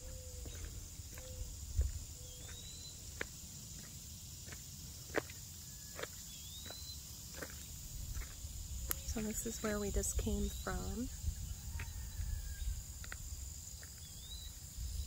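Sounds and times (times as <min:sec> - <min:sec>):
footsteps on gravel: 0:00.0 - 0:05.4, 0:06.0 - 0:10.7, 0:13.0 - 0:14.4
high insect hum: 0:00.0 - 0:15.0.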